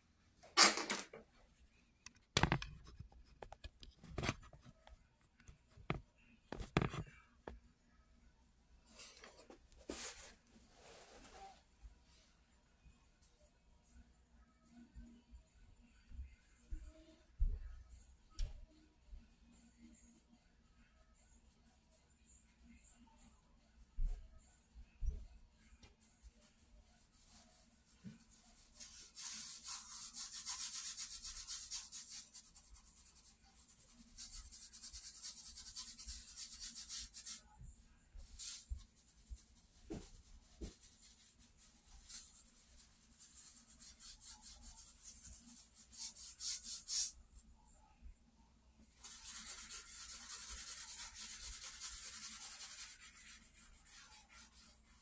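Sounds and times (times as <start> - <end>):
charcoal scratching on paper: 26.2 - 37.4, 38.2 - 47.2, 48.9 - 55.0.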